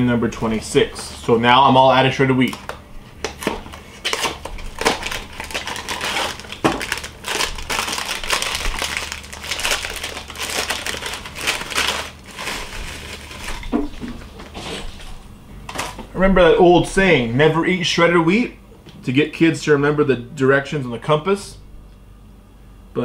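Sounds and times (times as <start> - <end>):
plastic bag crinkling and tearing: 3.4 - 14.0.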